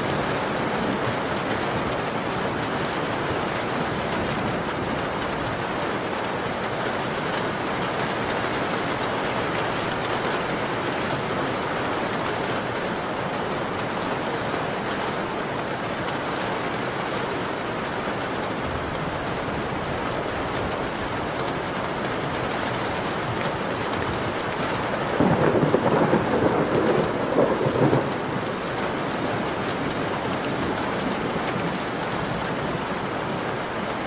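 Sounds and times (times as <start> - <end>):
steady rain hiss: 0.0 - 34.0
raindrop ticks: 20.1 - 34.0.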